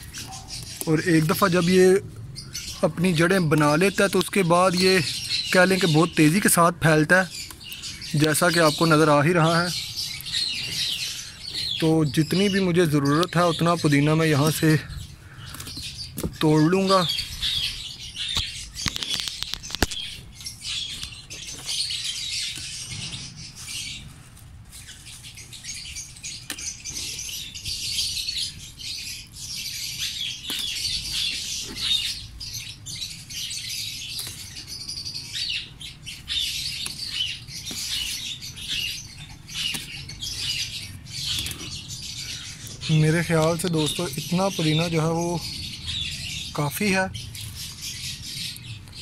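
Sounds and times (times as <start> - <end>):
small birds chirping: 0.0 - 49.0
mint stems being picked: 3.0 - 14.8, 30.3 - 32.7, 33.8 - 41.9.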